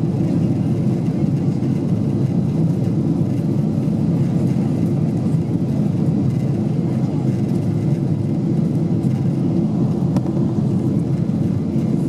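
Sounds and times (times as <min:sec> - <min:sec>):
airliner cabin rumble: 0:00.0 - 0:12.0.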